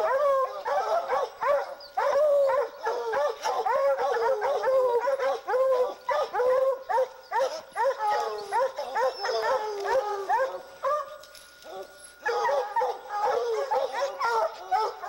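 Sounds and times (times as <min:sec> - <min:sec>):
hounds barking and bawling: 0:00.0 - 0:15.0.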